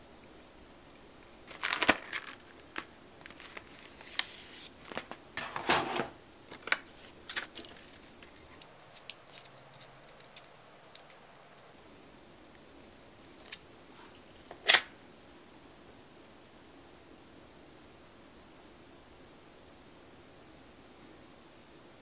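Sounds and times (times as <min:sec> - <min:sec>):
clattery rustles of small supplies: 0:01.4 - 0:11.7.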